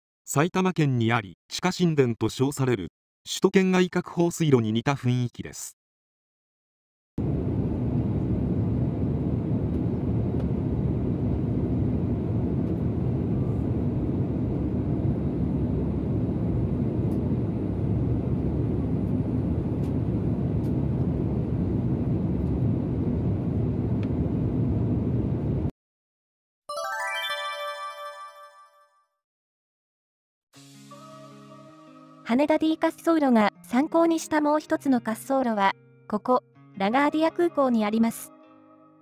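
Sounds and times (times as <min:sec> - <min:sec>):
airliner cabin engine and airflow noise: 0:07.2 - 0:25.7.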